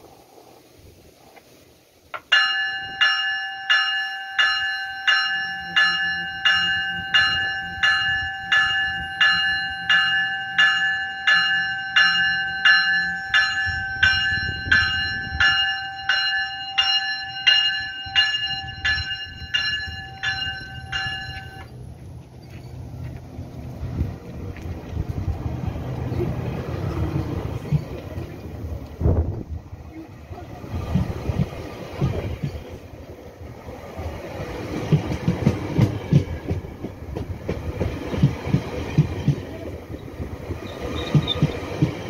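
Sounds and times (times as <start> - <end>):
low rumble of train rolling: 0.0 - 42.0
train bell ringing: 2.2 - 21.8.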